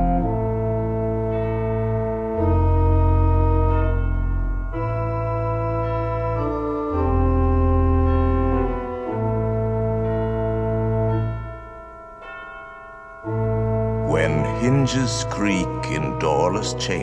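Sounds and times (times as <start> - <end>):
organ playing slow chords: 0.0 - 17.0.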